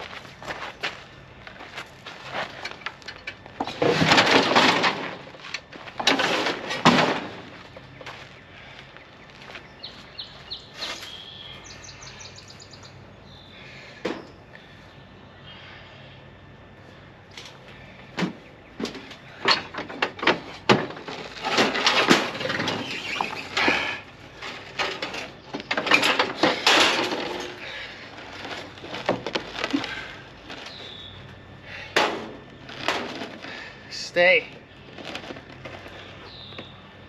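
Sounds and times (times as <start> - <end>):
mower clunking and rattling: 1.4 - 8.3, 14.0 - 14.4, 17.3 - 36.8.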